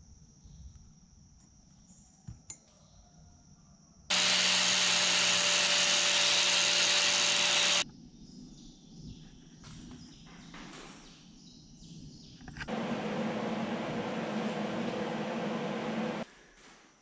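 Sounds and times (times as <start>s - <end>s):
angle grinder on steel: 4.1s - 7.8s.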